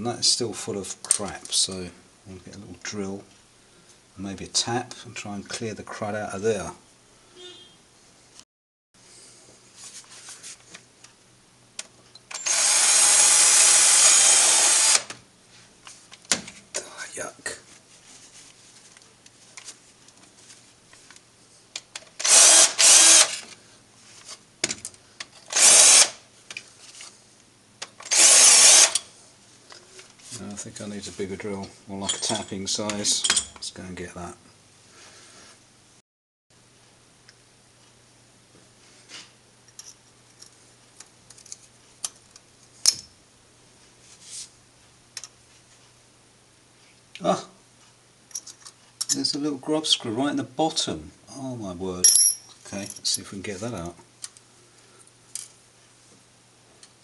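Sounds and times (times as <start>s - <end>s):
cordless drill bursts: 12.3s - 15.1s, 22.2s - 23.4s, 25.5s - 26.2s, 28.0s - 29.0s.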